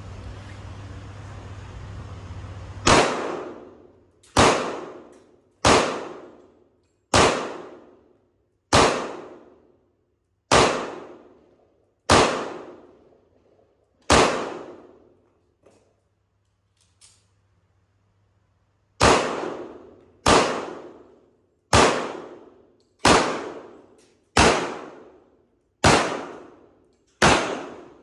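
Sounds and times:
pistol shots: 2.8 - 8.1, 8.7 - 9.7, 10.5 - 13.1, 14.0 - 15.1, 19.0 - 28.0.

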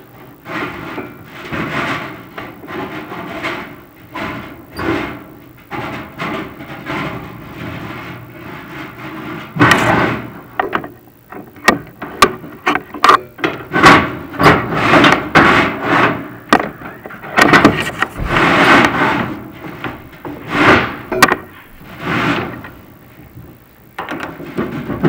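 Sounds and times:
camera rods scraping in metal flue: 14.4 - 22.8.

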